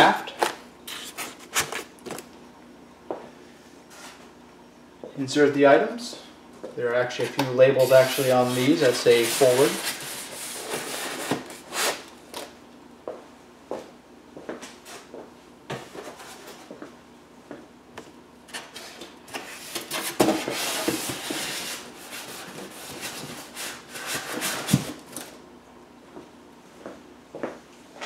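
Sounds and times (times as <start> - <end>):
foam blocks scraping cardboard: 7.8 - 12.0.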